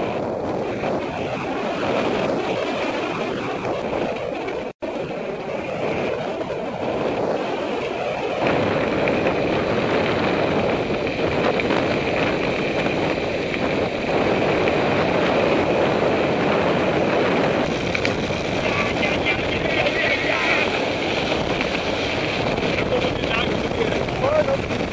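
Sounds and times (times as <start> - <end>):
wind on microphone: 0.0 - 24.9
tyres rolling on gravel: 1.8 - 24.9.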